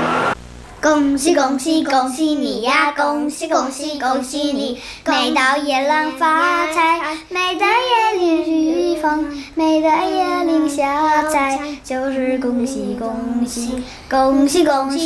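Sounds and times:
children singing: 0:03.0 - 0:15.0.

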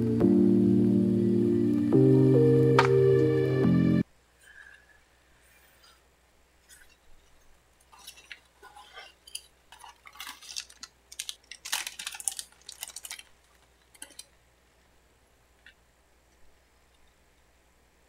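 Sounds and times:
packaging rustling: 0:06.7 - 0:14.4
plastic parts clicking and tapping: 0:09.3 - 0:14.4.

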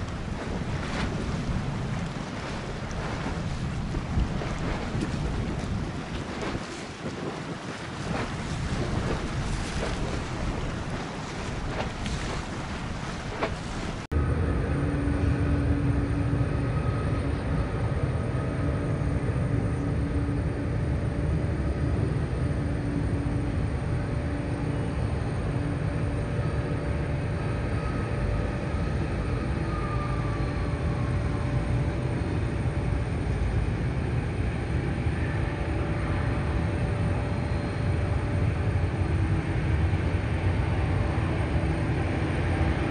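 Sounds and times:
wind buffeting microphone: 0:00.0 - 0:18.5.

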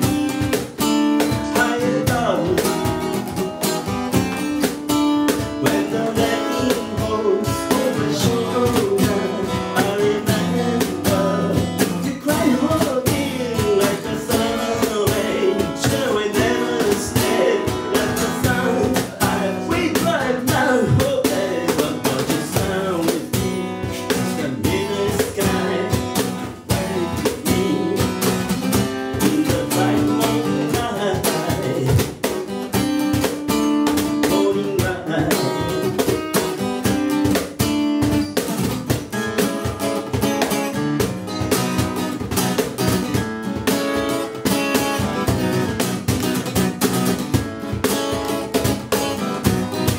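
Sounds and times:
acoustic guitar strumming: 0:00.0 - 0:49.9
cajon tapping: 0:00.0 - 0:49.9
man singing: 0:01.1 - 0:03.8, 0:05.3 - 0:32.3, 0:33.8 - 0:36.7.

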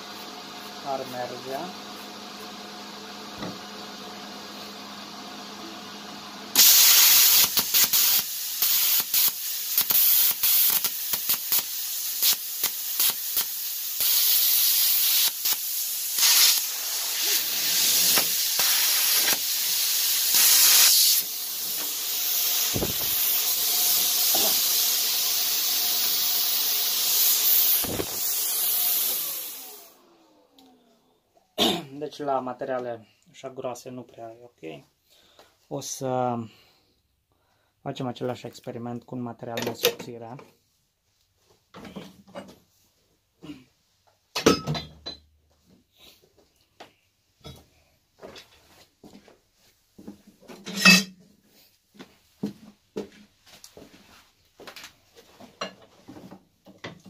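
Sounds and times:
plasma cutter hissing and crackling: 0:06.6 - 0:30.0.

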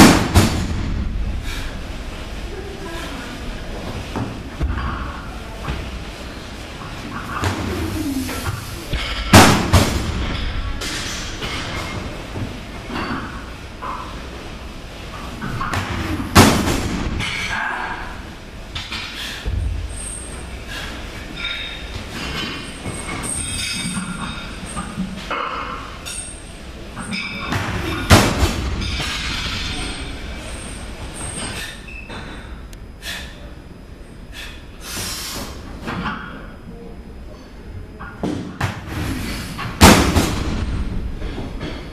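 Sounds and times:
barbell clanks and thuds: 0:08.9 - 0:14.1
barbell plates ringing and rattling: 0:21.3 - 0:32.5.

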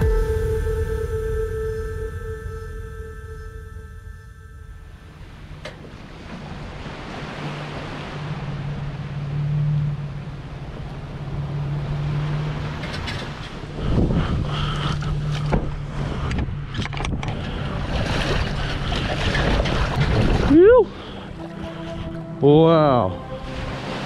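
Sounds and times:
rush of wind and water: 0:05.1 - 0:24.0.

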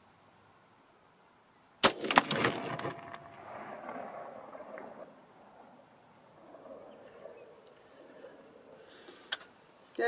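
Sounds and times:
rifle shot with echoes: 0:01.8 - 0:05.0.

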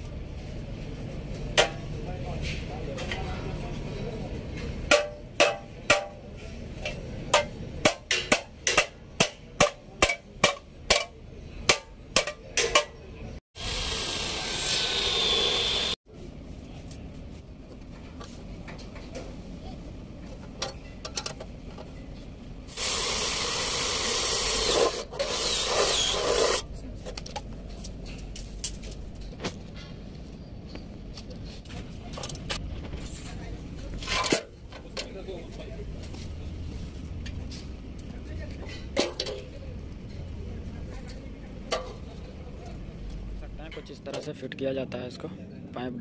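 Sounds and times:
hammer striking sheet steel: 0:04.9 - 0:06.3, 0:07.3 - 0:12.9
cordless drill boring metal: 0:13.6 - 0:16.0, 0:22.7 - 0:26.6.

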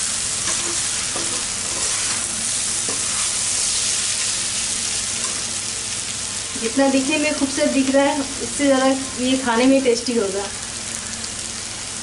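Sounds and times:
food sizzling in oil: 0:00.0 - 0:12.0
spatula scraping a pan: 0:00.4 - 0:04.3.

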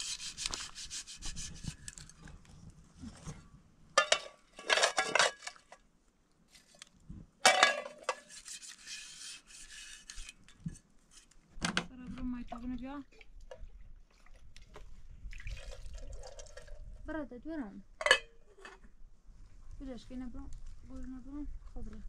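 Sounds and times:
hand rubbing and scraping: 0:00.0 - 0:05.4, 0:07.9 - 0:11.6.

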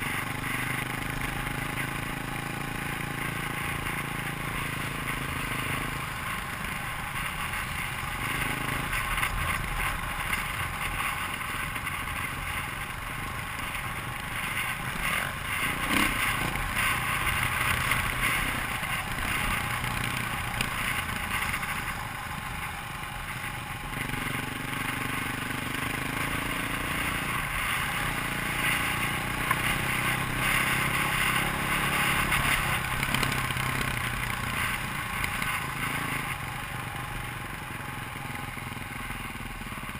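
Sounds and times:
dirt bike engine revving: 0:11.8 - 0:21.6.

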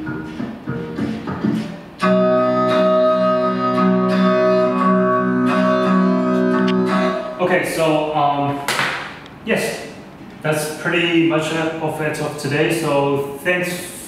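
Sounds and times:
music through speaker: 0:00.0 - 0:07.4
loud held chord: 0:00.0 - 0:07.8.

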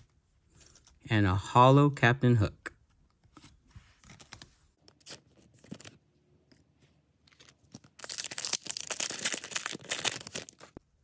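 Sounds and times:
foil wrapper tearing and crinkling: 0:07.4 - 0:10.8.

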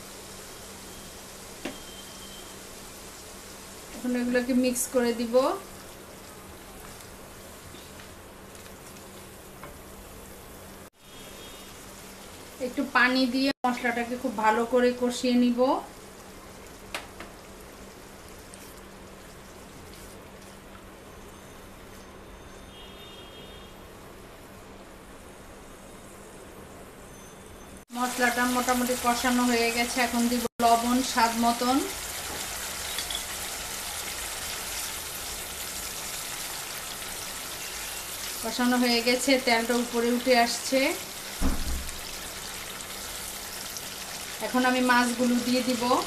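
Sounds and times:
spice paste sizzling in oil: 0:00.0 - 0:22.6, 0:27.9 - 0:46.0
paste sizzling in hot oil: 0:27.9 - 0:46.0.

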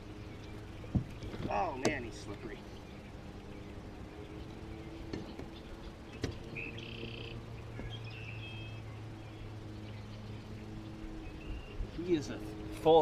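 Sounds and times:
steady low hum: 0:00.0 - 0:13.0
light knocks in a boat: 0:00.9 - 0:02.5, 0:05.1 - 0:05.6, 0:06.2 - 0:06.5.

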